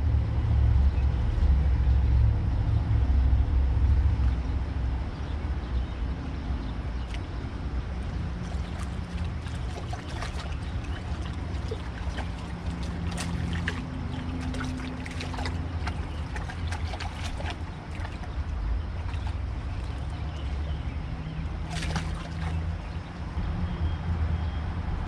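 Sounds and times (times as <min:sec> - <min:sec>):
low rumble: 0:00.0 - 0:06.4
fish splashing: 0:08.0 - 0:23.0
river water rushing: 0:08.0 - 0:23.0.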